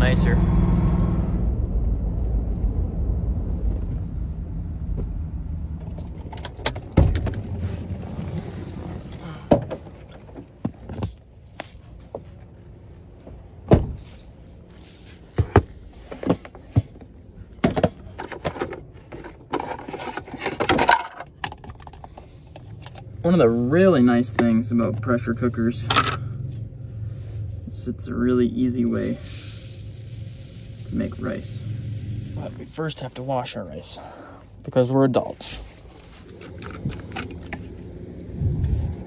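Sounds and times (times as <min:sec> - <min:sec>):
truck cabin rumble: 0:00.0 - 0:19.5, 0:35.3 - 0:39.0.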